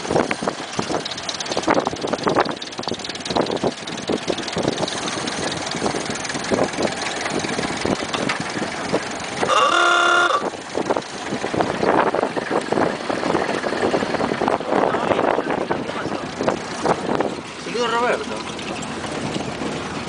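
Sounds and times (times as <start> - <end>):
wind on microphone: 0.0 - 17.6
bumping rattling road noise: 0.0 - 20.0
car engine running: 0.0 - 20.0
car horn: 9.4 - 10.5.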